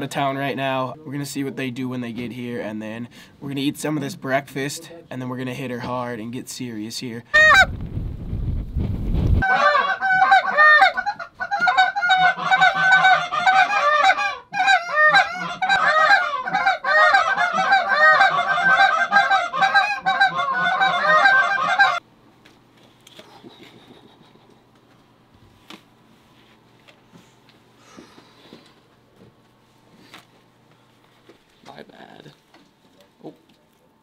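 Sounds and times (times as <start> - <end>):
goose call honks and clucks: 7.4 - 7.7, 9.4 - 22.0.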